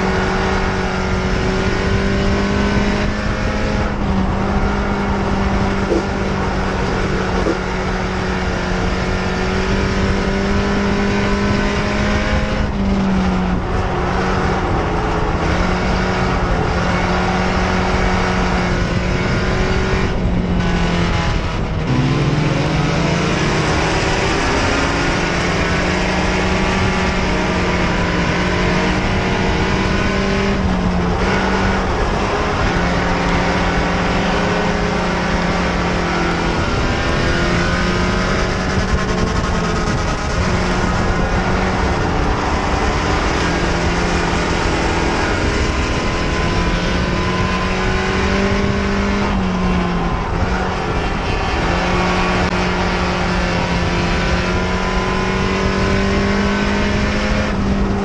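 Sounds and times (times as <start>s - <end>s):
race car engine at high revs: 0.0s - 58.0s
wind noise: 0.0s - 58.0s.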